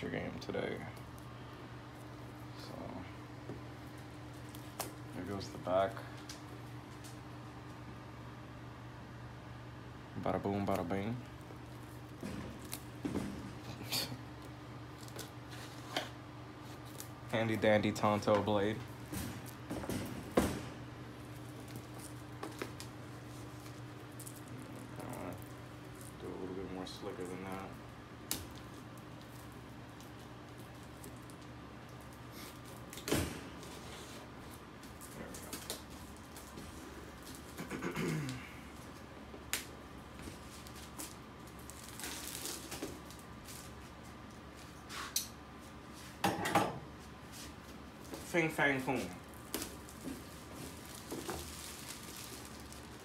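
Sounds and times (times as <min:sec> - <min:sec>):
steady low hum: 0:00.0 - 0:53.0
cardboard box and plastic rustling: 0:40.2 - 0:43.9, 0:48.9 - 0:53.0.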